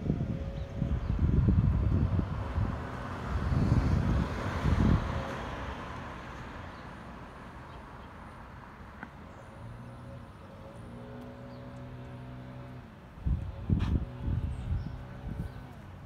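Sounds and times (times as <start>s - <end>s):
wind buffeting microphone: 0.0s - 6.2s, 13.1s - 16.0s.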